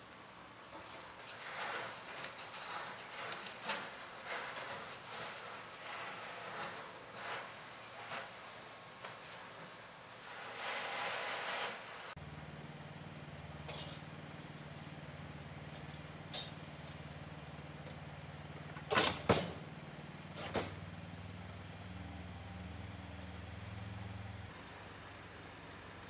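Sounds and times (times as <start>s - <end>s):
vehicle engine idling: 12.2s - 26.0s
short hiss: 13.7s - 14.1s, 16.3s - 16.6s.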